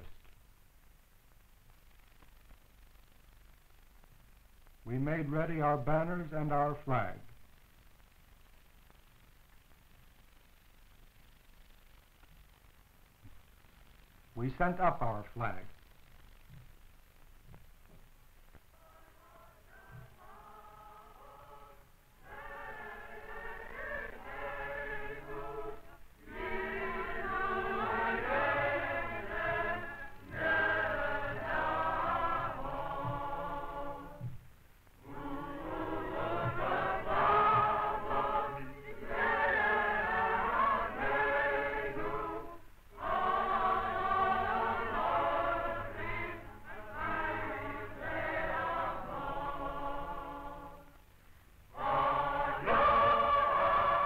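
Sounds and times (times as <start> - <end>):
choir singing: 18.8 - 34.4, 35.0 - 51.0, 51.7 - 54.0.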